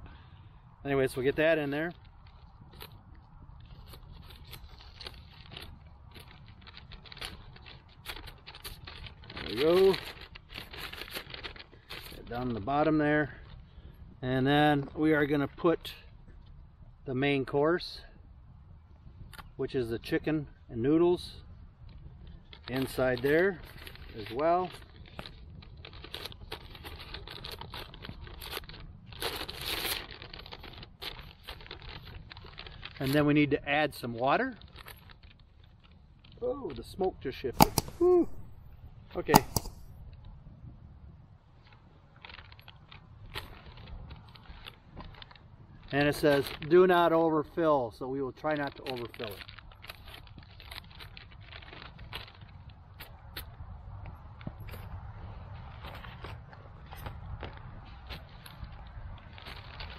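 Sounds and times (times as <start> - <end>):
plastic packaging crinkling: 3.6 - 12.3, 22.5 - 33.2, 34.6 - 36.8, 37.5 - 40.0, 41.6 - 45.4, 48.4 - 52.6, 58.2 - 59.9.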